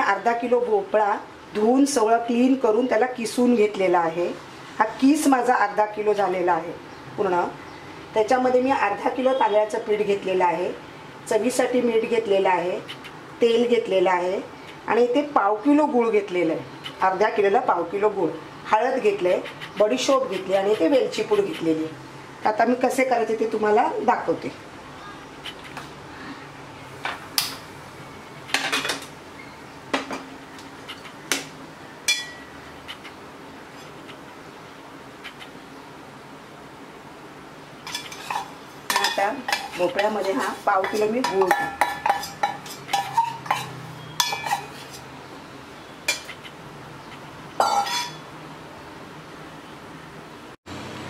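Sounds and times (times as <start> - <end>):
metal bowl and spatula clinking: 32.1 - 32.5, 37.9 - 45.0, 46.1 - 46.3, 47.6 - 48.3.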